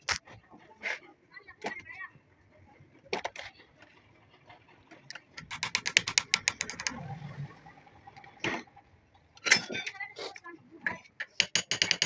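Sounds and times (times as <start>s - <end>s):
sharp metallic clicks: 5.1s - 7.0s.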